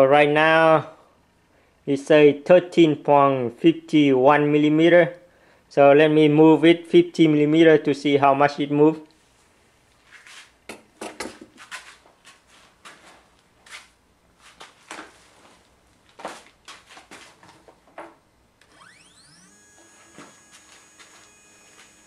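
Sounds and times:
stepper motor whine: 18.6 - 22.0.

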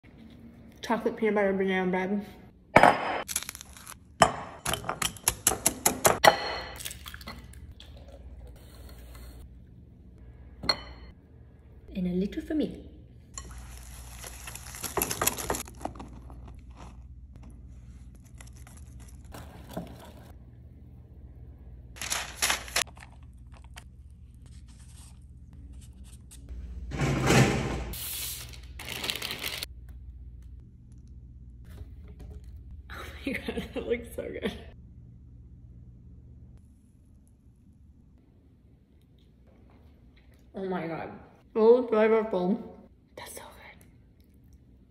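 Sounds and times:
rustling and scraping of parchment: 13.5 - 19.6.

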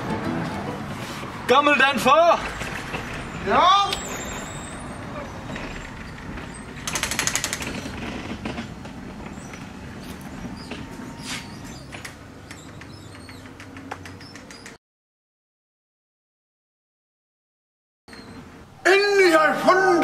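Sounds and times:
garage door rolling open: 2.2 - 14.8
rapid rattle: 5.6 - 9.4.

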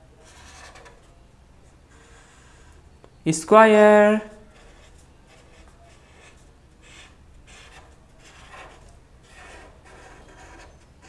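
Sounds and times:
marker drawing on paper: 0.2 - 0.8, 1.9 - 2.8, 4.4 - 11.0.

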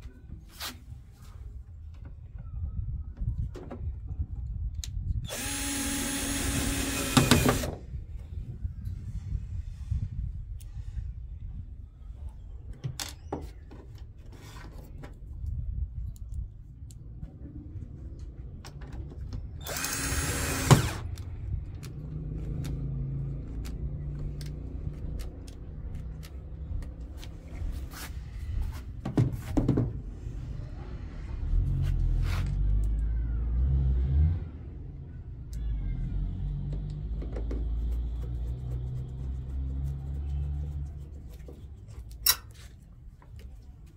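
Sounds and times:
cordless drill driving a screw: 5.3 - 7.8, 19.6 - 21.1.

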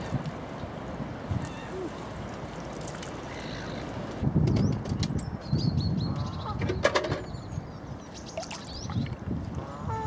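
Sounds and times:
wind buffeting microphone: 3.5 - 10.0.

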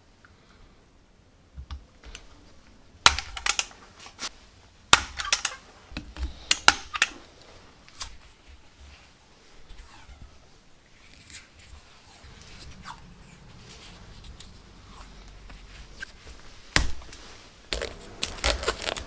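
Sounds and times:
rivet tool clicking and snapping: 3.1 - 3.8, 5.0 - 5.6.

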